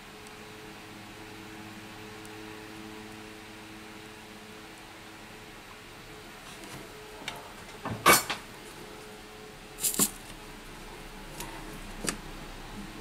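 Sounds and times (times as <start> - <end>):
faint steady hum: 0.0 - 13.0
small hard objects clattering: 9.8 - 10.3.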